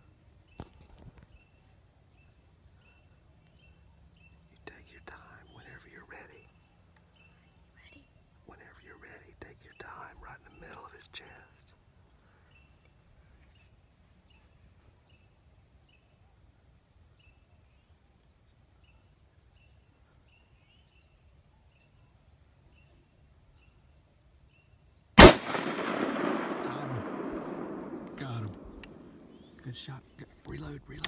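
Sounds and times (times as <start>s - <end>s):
faint bird chirps: 0.4s - 25.2s, 26.4s - 31.0s
loud gunshot echoing: 25.2s - 29.6s.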